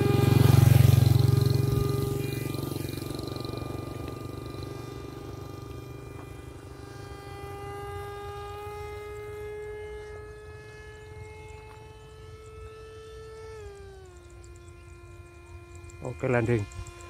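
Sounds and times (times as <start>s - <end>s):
motorcycle rumble: 0.0s - 12.0s
model jet fan whine: 0.0s - 17.0s.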